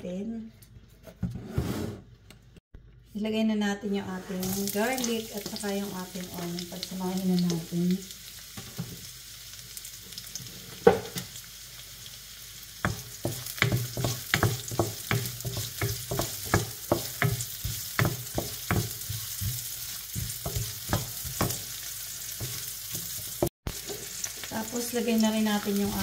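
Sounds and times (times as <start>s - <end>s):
wooden spoon scraping a pan: 0.8s - 2.1s, 12.9s - 24.5s
onion sizzling in hot oil: 4.4s - 26.0s.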